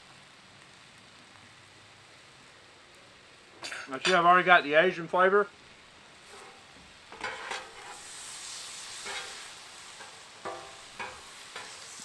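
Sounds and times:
steak sizzling on a griddle: 0.0s - 12.0s
metal spatula scraping steel: 6.2s - 12.0s.

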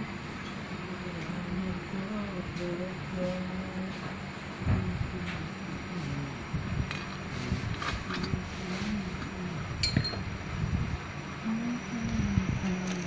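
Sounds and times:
metal clinks and taps: 6.9s - 7.2s, 9.8s - 10.2s
sharp ringing metal clink: 9.8s - 10.2s.

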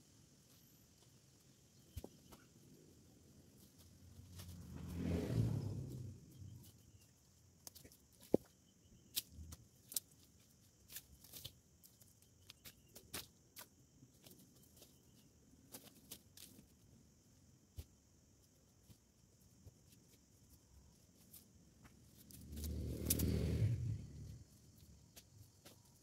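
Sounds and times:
twigs cracking and snapping: 22.1s - 23.5s.

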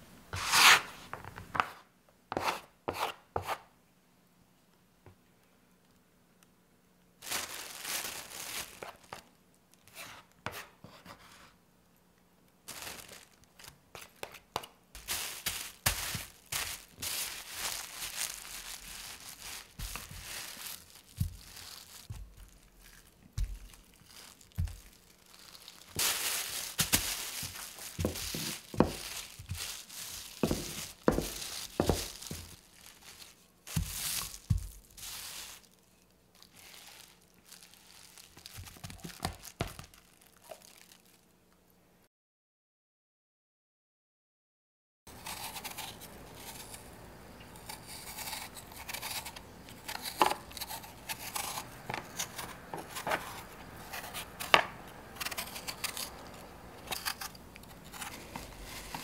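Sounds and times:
plastic bag crinkling: 7.2s - 9.3s, 12.6s - 14.2s, 15.0s - 41.3s.

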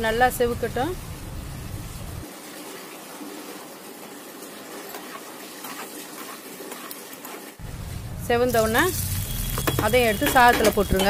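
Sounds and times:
nuts sizzling in hot fat: 8.5s - 11.0s.

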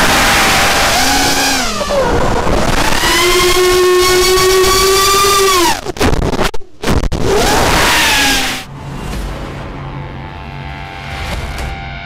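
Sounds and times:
quadcopter motors whining: 0.0s - 5.8s.

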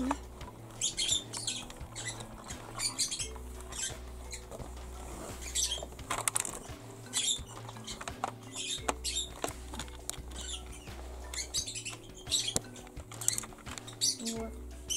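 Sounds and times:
plastic pieces clicking and scraping: 5.4s - 14.0s.

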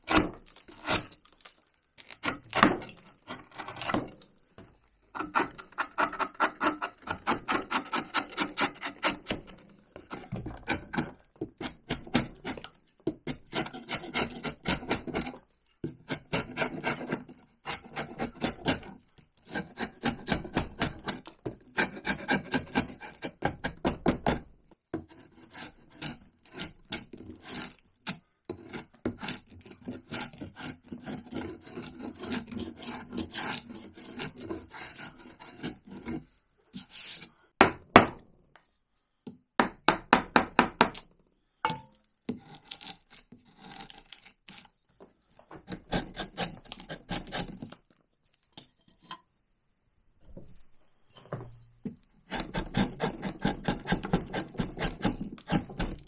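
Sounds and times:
hand tool scraping bark: 5.1s - 9.5s, 10.1s - 15.4s, 28.6s - 37.4s, 52.2s - 56.0s.

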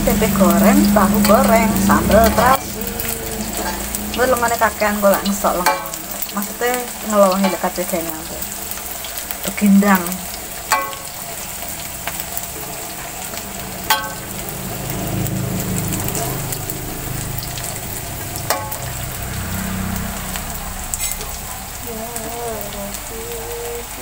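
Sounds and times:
food sizzling in hot oil: 0.0s - 24.0s
metal spatula clinking on wok: 21.0s - 21.3s.

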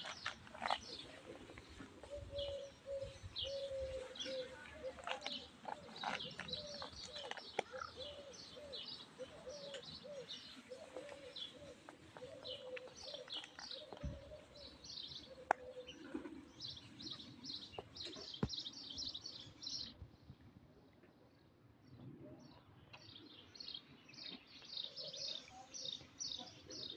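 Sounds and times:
dove cooing: 0.0s - 17.3s
small birds chirping: 0.0s - 20.0s, 21.3s - 26.9s.

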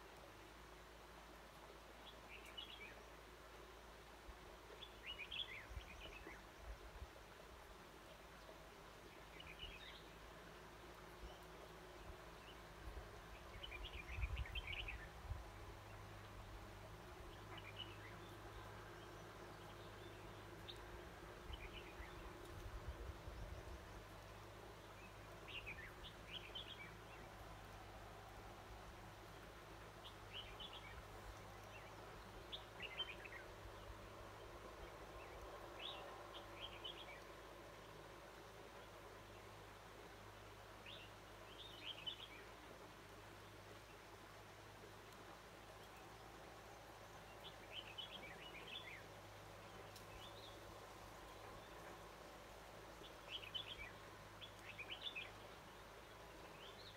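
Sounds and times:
low steady hiss: 0.0s - 56.9s
faint bird chirping: 1.6s - 7.0s, 7.8s - 56.9s
bird chirping: 47.0s - 52.0s, 53.0s - 56.9s.

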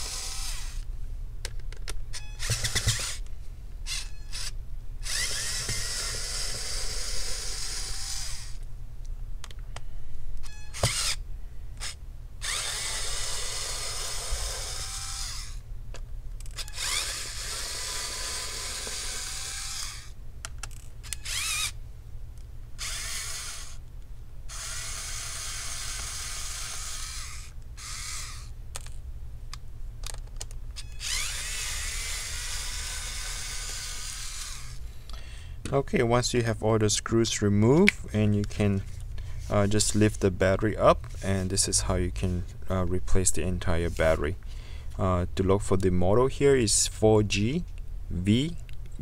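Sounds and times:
electric screwdriver motor whining: 0.0s - 0.8s, 2.1s - 3.2s, 3.9s - 8.6s, 10.4s - 11.2s, 11.8s - 15.6s, 16.5s - 20.2s, 20.8s - 21.8s, 22.8s - 23.8s, 24.5s - 28.9s, 30.8s - 34.8s.

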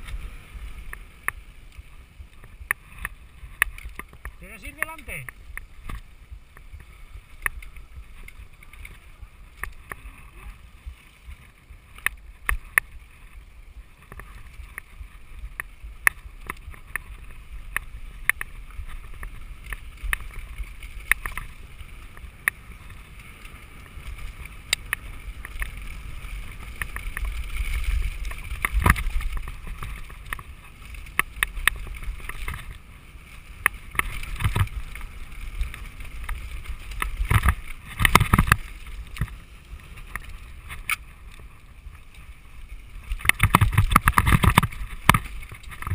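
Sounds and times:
bike rattling over bumps: 0.0s - 45.9s
bike tyres rolling over dirt: 0.0s - 45.9s
wind rumble on microphone: 0.0s - 45.9s.

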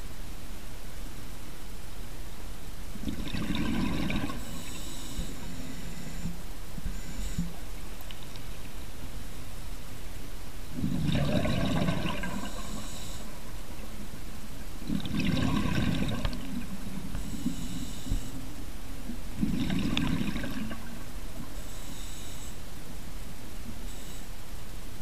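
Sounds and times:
gurgling exhaled bubbles: 3.0s - 4.6s, 10.7s - 12.9s, 14.8s - 17.1s, 19.3s - 21.2s.

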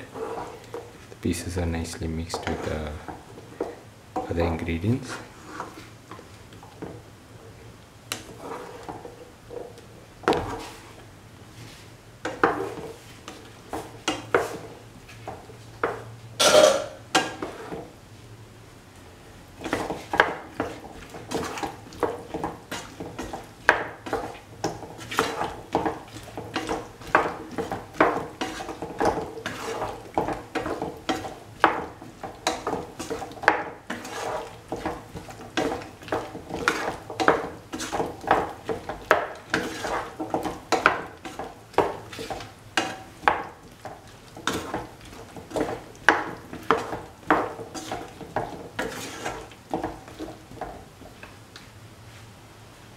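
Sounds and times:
utensil scraping and knocking pan: 12.2s - 17.9s, 19.6s - 50.8s.

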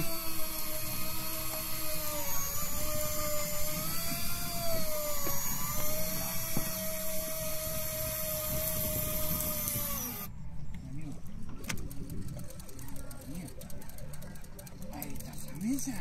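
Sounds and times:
fishing reel motor whine: 0.0s - 10.4s.

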